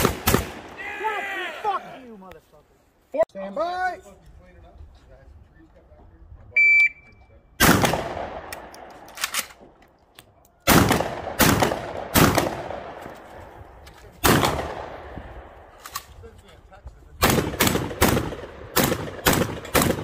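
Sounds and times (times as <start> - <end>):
shotgun shots: 0.0 - 0.8, 7.6 - 9.6, 10.7 - 13.2, 14.2 - 15.9, 17.2 - 20.0.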